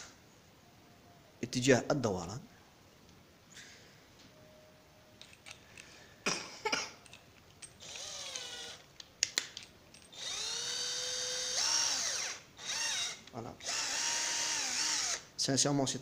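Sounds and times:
cordless drill motor whirring: 7.8 - 8.8, 10.1 - 15.3.

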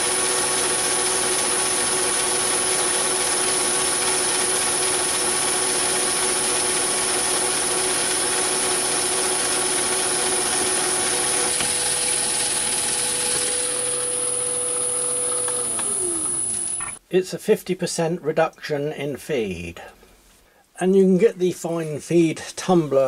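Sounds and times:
lathe motor humming and whirring: 0.0 - 17.0.

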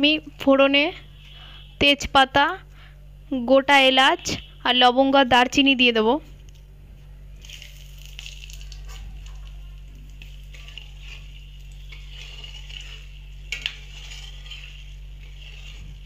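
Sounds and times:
low steady hum: 0.0 - 16.0
spices sizzling in hot oil: 7.4 - 16.0
metal spatula scraping wok: 10.2 - 16.0.

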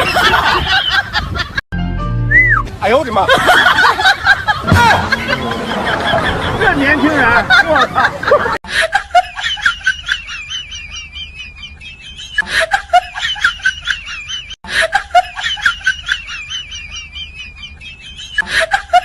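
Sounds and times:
giggling: 3.3 - 19.0.

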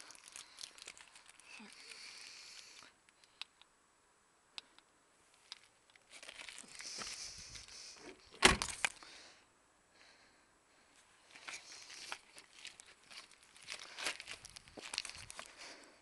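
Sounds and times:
handling noises: 5.3 - 9.0.

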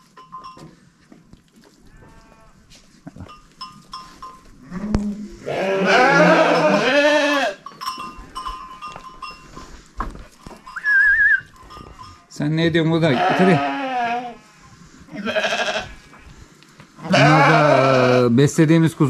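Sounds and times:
sheep bleating: 1.9 - 2.6, 4.6 - 7.6, 13.0 - 16.3, 17.0 - 18.4.

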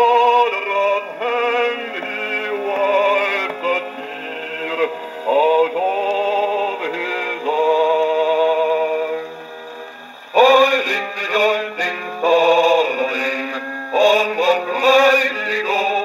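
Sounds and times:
old gramophone record with male vocal: 0.0 - 16.0.

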